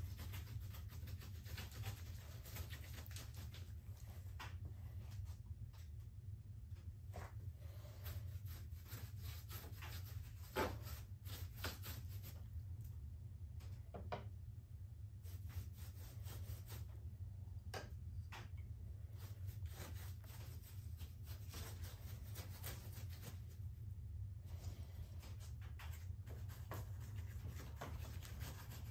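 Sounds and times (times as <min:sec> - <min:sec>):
scratchy rubbing on plaster: 0:00.0 - 0:03.8, 0:07.7 - 0:12.5, 0:19.1 - 0:23.6, 0:26.3 - 0:28.9
steady low hum: 0:00.0 - 0:28.9.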